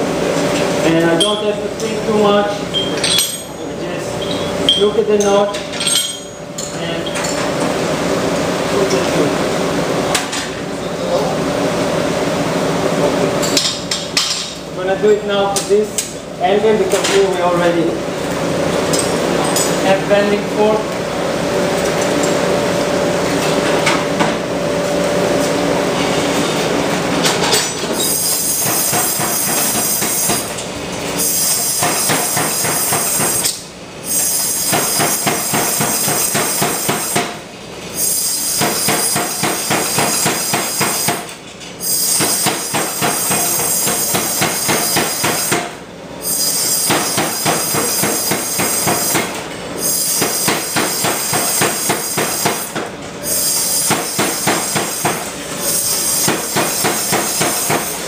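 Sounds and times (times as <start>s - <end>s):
power hammer pounding hot steel: 28.1s - 30.5s, 31.3s - 33.5s, 34.2s - 37.4s, 38.3s - 41.3s, 41.9s - 45.8s, 46.4s - 52.8s, 53.5s - 58.0s.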